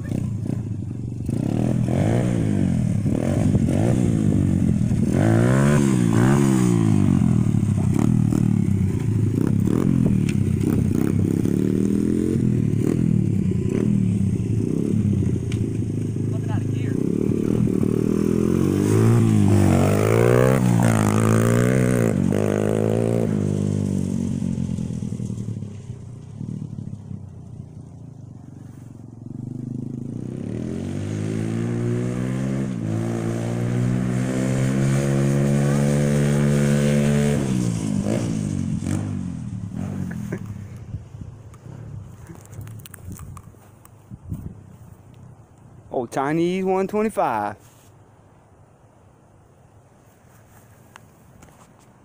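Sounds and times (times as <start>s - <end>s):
motorbike engine revving: 0.0s - 27.8s, 28.5s - 41.0s.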